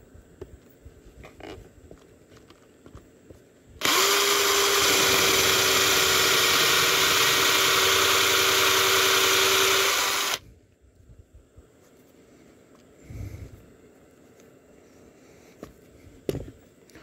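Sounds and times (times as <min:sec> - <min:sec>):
power drill boring into wood: 0:03.8 - 0:10.4.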